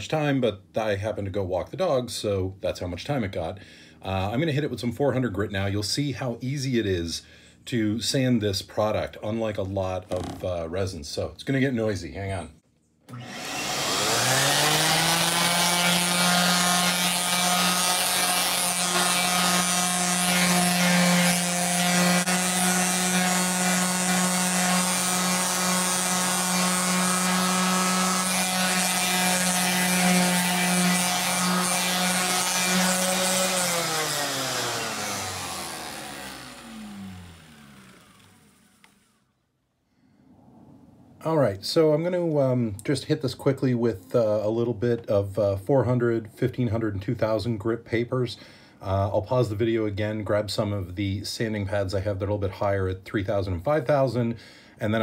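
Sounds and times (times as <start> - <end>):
orbital sander motor whine: 13.1 - 39.2.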